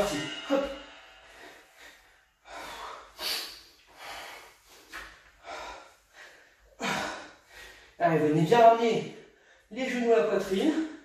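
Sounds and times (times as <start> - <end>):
man breathing hard: 0.0 - 8.0.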